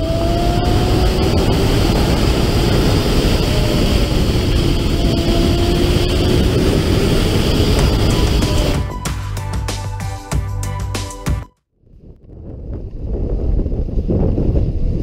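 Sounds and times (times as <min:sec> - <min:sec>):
wind rush on microphone: 0:00.0 - 0:09.0, 0:11.8 - 0:15.0
motorcycle engine running: 0:00.0 - 0:09.6.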